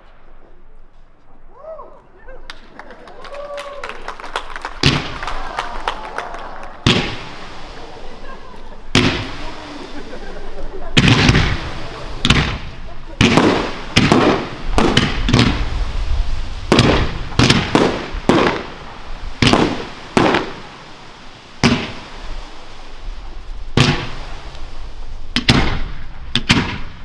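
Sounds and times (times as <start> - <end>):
fireworks bangs: 2.6 - 27.0
fireworks hissing crackle: 4.4 - 27.0.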